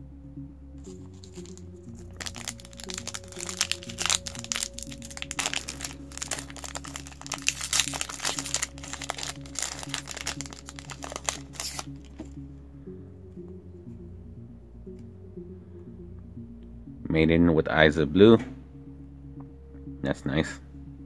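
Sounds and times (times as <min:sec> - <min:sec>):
background music: 0:00.0 - 0:21.0
foil wrapper crinkling and tearing: 0:01.1 - 0:12.2.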